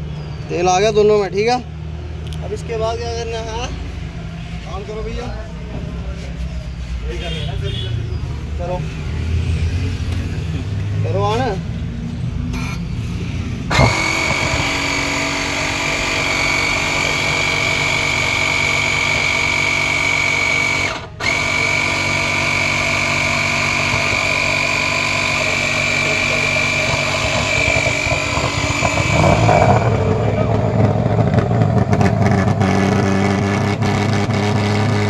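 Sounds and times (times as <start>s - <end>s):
fogging machine whine: 13.7s - 35.0s
machine low rumble: 23.7s - 32.8s.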